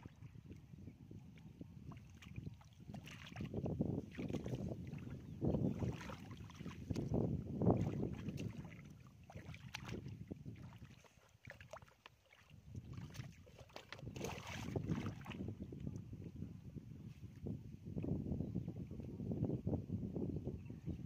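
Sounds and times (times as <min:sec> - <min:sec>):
mud and water sloshing: 0:00.0 - 0:16.2.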